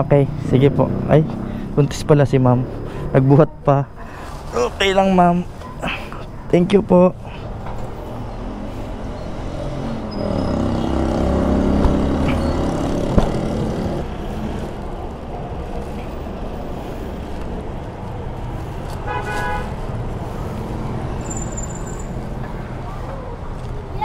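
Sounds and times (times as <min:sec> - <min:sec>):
traffic noise: 0:00.0 - 0:24.0
vehicle engine running: 0:07.8 - 0:18.9
car horn toot: 0:19.0 - 0:19.7.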